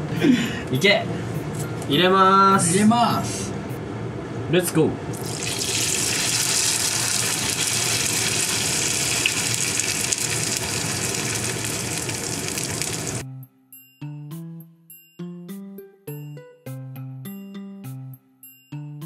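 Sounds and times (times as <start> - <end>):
batter sizzling in hot oil: 5.1 - 13.2.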